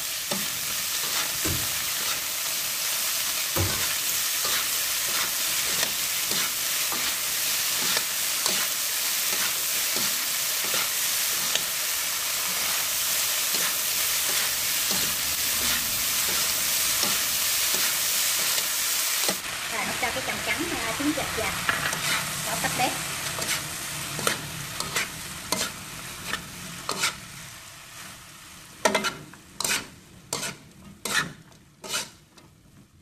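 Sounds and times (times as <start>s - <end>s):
vegetables sizzling in pan: 0.0s - 32.2s
stirring strokes clicking on pan: 23.2s - 27.2s, 28.8s - 32.5s.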